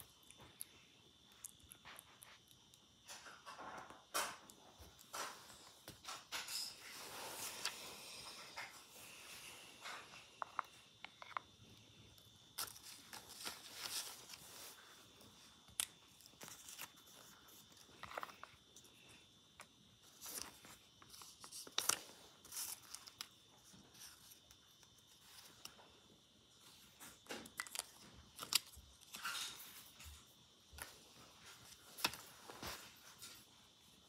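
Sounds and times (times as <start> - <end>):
light clicks and paper rustles: 15.7 - 18.9.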